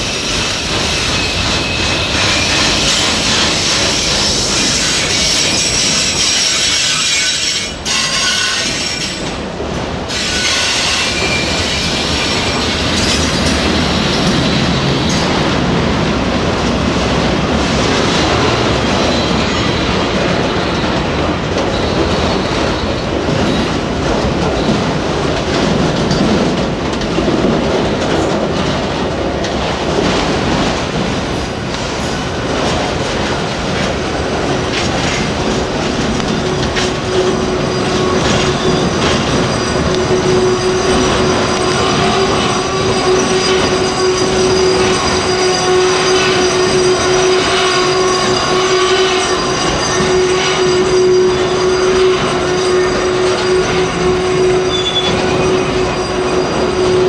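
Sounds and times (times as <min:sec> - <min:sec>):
train wheels rumbling on rail: 0:00.0 - 0:57.0
steady squealing tone: 0:34.4 - 0:57.0.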